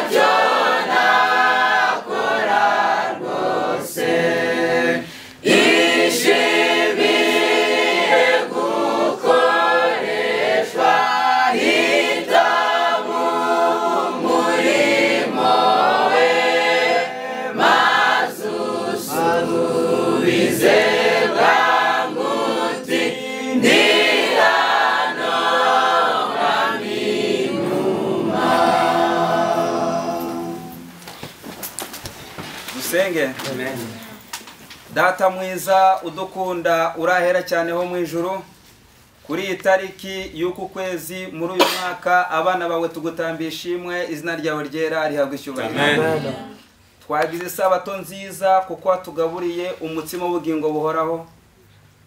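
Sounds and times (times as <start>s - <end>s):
choir singing a hymn: 0.0s - 31.0s, 45.7s - 46.6s.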